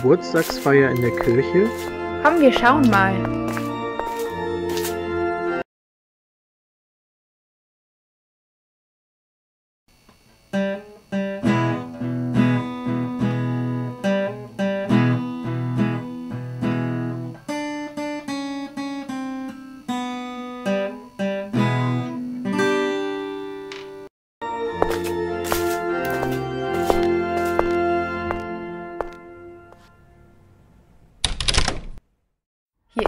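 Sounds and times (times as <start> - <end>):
acoustic guitar music: 0.0 - 5.6, 10.5 - 29.6.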